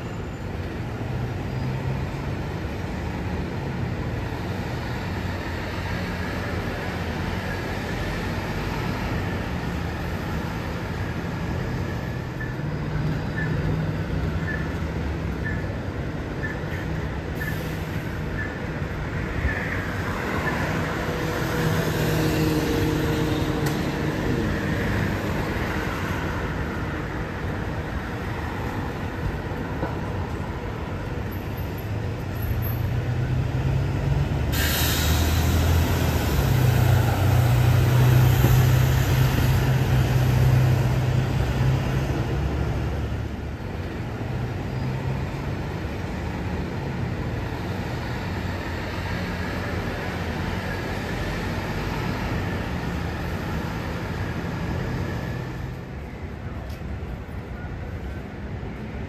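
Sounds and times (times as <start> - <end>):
bus diesel engines: 0.0 - 59.0
short air hiss: 34.5 - 35.8.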